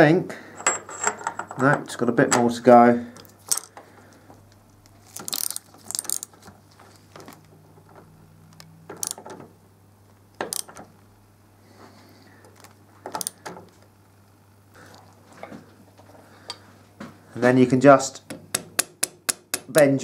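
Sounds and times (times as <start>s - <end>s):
hand tools clicking on metal: 12.6s - 13.6s.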